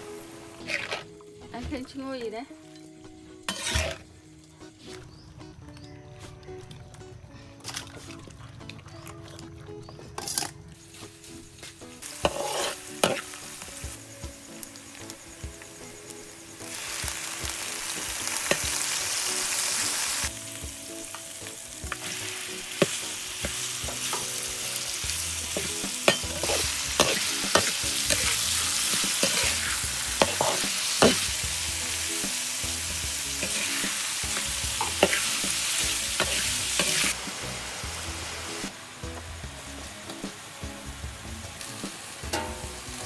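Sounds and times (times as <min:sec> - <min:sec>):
food sizzling in a wok: 0:00.0 - 0:05.0, 0:10.2 - 0:43.0
metal spatula scraping a wok: 0:00.6 - 0:01.1, 0:03.4 - 0:04.1, 0:12.1 - 0:13.3, 0:25.5 - 0:31.4, 0:33.4 - 0:37.2.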